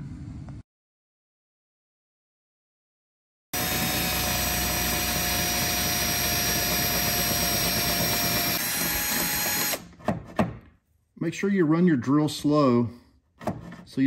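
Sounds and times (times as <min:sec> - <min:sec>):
power drill drilling through sheet metal: 0:03.6 - 0:09.9.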